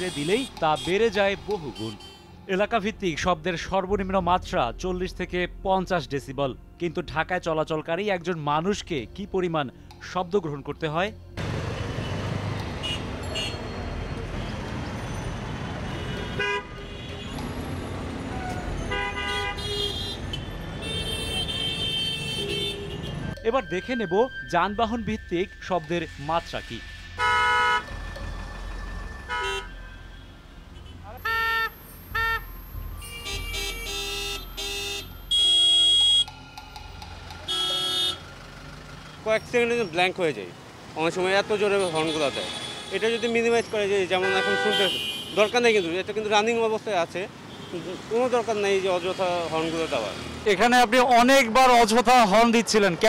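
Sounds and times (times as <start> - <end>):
vehicle horns honking: 0.0 - 1.1, 12.8 - 13.8, 15.9 - 17.6, 18.3 - 23.4, 27.2 - 28.0, 29.2 - 36.3, 37.4 - 38.3, 41.4 - 46.1
dense road traffic: 0.0 - 6.0, 9.7 - 53.0.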